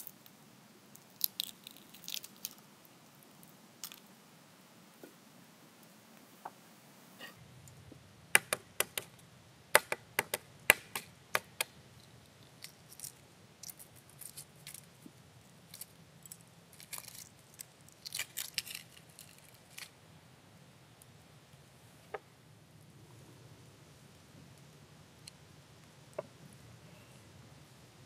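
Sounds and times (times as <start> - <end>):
eggshell cracking: 0.0 - 2.7
eggshell crackling while peeled: 0.0 - 4.1, 11.4 - 15.0, 15.6 - 20.0.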